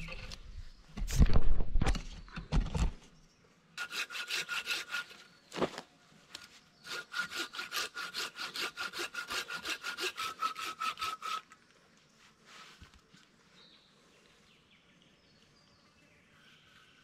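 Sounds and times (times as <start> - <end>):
hand saw cutting wood: 3.8 - 5.3, 6.8 - 11.6.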